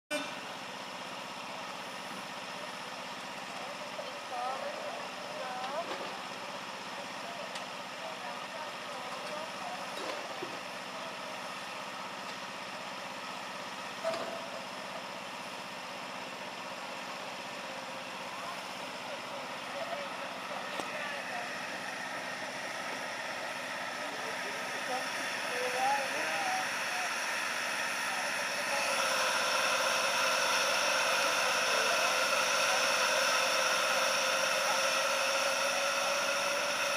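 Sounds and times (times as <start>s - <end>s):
steam hissing: 20.2s - 36.9s.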